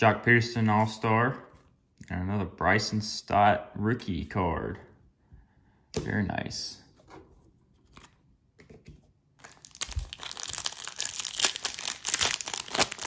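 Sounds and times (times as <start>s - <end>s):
foil wrapper crinkling and tearing: 9.4s - 13.0s.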